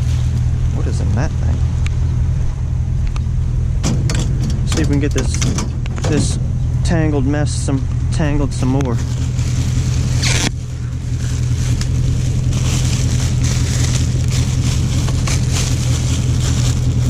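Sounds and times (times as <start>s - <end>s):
vehicle engine idling: 0.0s - 17.0s
trash rustling and scraping: 3.8s - 17.0s.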